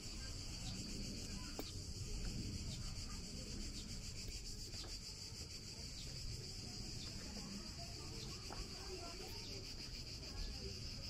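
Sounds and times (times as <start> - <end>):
insects shrilling: 0.0 - 11.0.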